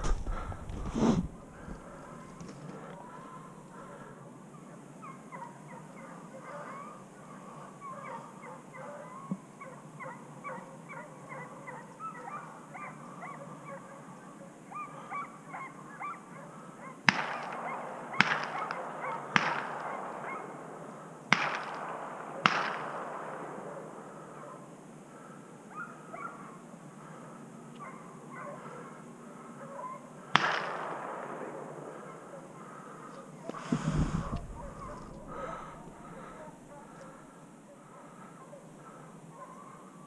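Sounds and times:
distant hounds yelping: 1.4 - 40.0
gunshots with echo: 17.1 - 24.7, 30.3 - 37.2.

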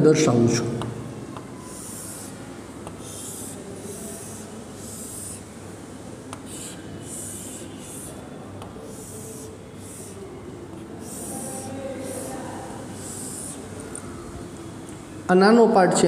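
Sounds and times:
chalk tapping on board: 0.8 - 3.6, 6.3 - 12.4
chalk scraping on chalkboard: 1.4 - 5.5, 6.3 - 13.7.

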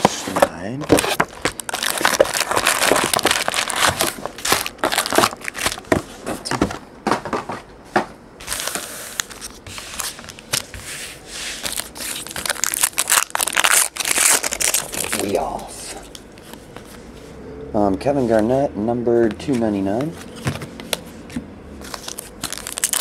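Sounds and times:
foil wrapper crinkling: 0.3 - 6.0, 11.6 - 16.1, 21.9 - 23.0
foil pack tearing: 0.9 - 5.8, 11.6 - 15.5, 21.9 - 23.0.

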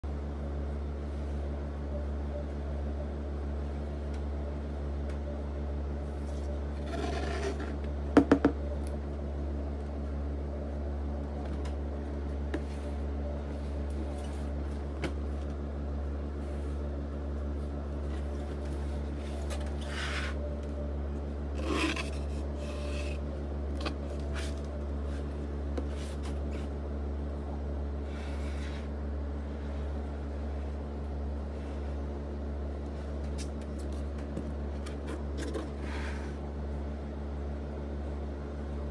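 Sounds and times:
steady low hum: 0.0 - 38.9
cardboard box scraping on table: 6.8 - 7.8, 19.6 - 20.4, 21.6 - 23.2.

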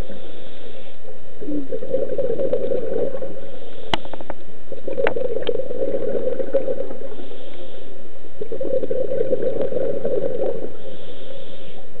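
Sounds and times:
regulator inhalation hiss: 0.0 - 1.1, 3.4 - 4.3, 7.0 - 8.1, 10.7 - 12.0
exhaled bubbles gurgling: 0.0 - 12.0.

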